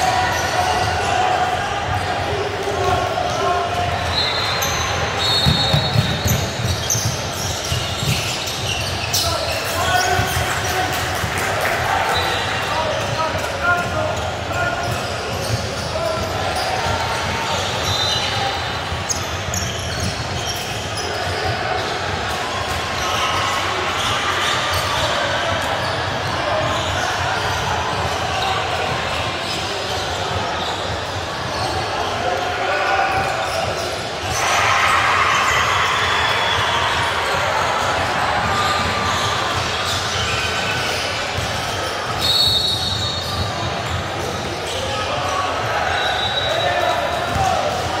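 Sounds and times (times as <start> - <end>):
echoing crowd chatter: 0.0 - 48.0
sneaker squeaks: 0.0 - 48.0
whistle blast: 4.1 - 6.2, 42.2 - 43.1
basketball bouncing on wooden court: 5.3 - 9.2, 40.6 - 42.2.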